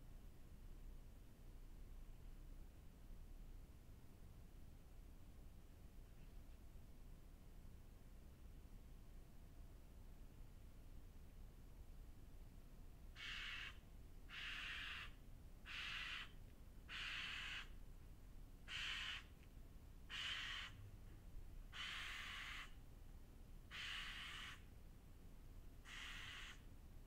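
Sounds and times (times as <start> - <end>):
crow cawing: 13.2 - 17.7, 18.7 - 19.3, 20.1 - 20.8, 21.7 - 22.8, 23.7 - 24.6, 25.8 - 26.6.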